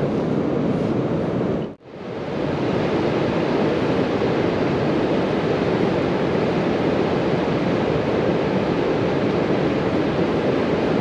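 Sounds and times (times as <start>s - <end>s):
water rushing over a weir: 1.8s - 11.0s.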